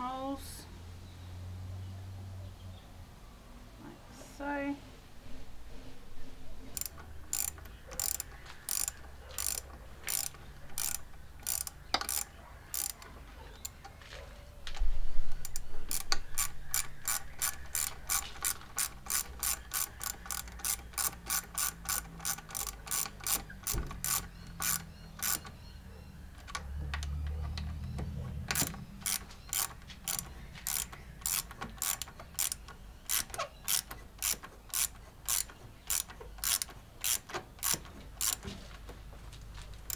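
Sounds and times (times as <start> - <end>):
hand ratchet clicking: 6.7 - 13.8, 14.8 - 25.6, 26.4 - 38.5.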